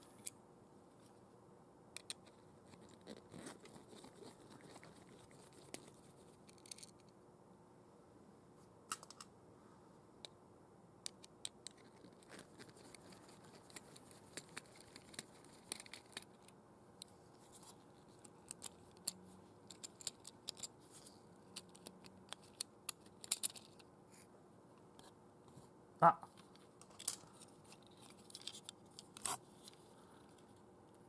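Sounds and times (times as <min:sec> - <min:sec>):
screwdriver clicks and scratches: 0:11.1 - 0:16.6, 0:17.5 - 0:23.9, 0:26.4 - 0:29.8.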